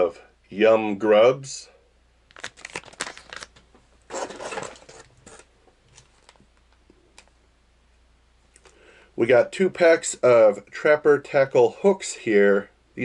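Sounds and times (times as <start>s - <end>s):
plastic packaging crinkling: 2.3s - 7.3s
plastic packaging rustle: 2.3s - 7.3s.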